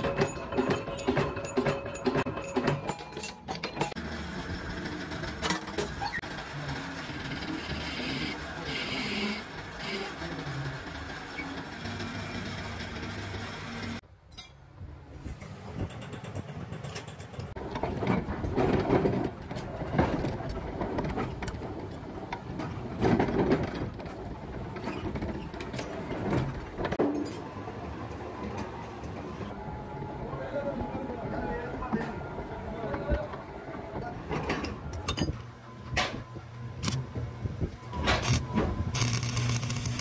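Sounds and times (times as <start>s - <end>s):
chain-making machine clicking: 39.0s - 40.0s.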